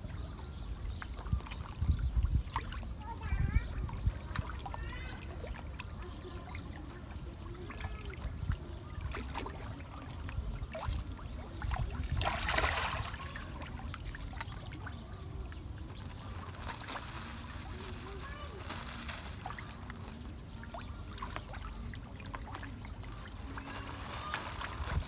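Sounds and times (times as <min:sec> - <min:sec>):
fish splashing at water surface: 0:03.9 - 0:25.0
loud splash: 0:11.9 - 0:13.8.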